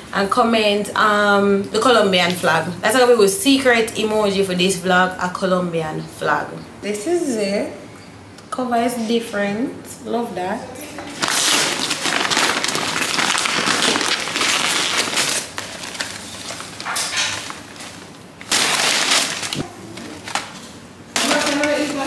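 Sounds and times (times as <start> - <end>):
paper bags rustling: 11.2 - 22.0.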